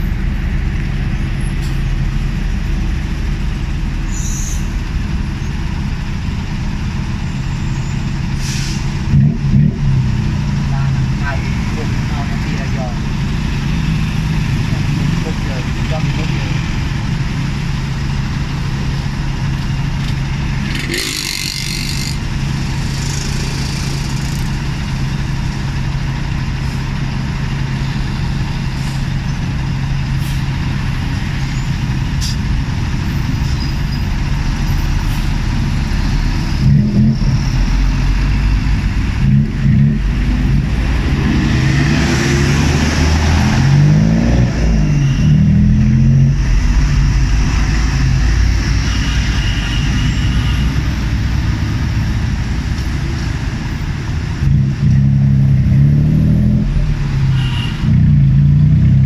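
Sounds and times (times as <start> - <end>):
hiss of air: 8.4 - 9.0
small engine idling and revving: 9.0 - 59.0.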